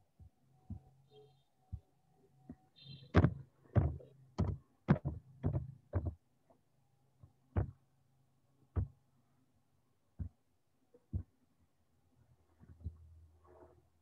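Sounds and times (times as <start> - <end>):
faint low hum: 0.0 - 14.0
sharp knocks and clicks: 2.5 - 6.2, 7.6 - 7.8, 8.7 - 9.0.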